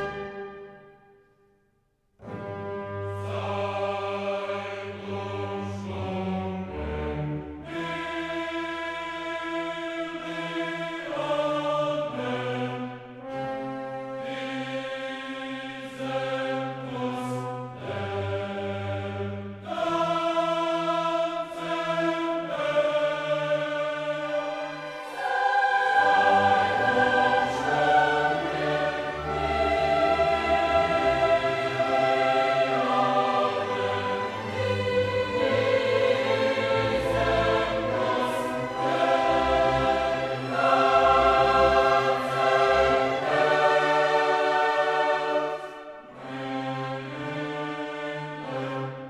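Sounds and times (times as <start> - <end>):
choir singing sustained chords: 0.0 - 1.2, 2.2 - 49.0
orchestral strings: 0.0 - 1.2, 2.2 - 49.0.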